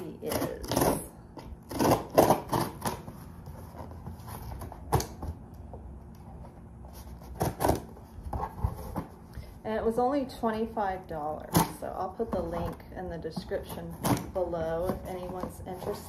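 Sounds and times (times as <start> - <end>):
cardboard scraping and rustling: 0.2 - 5.4, 6.2 - 9.3, 11.6 - 16.0.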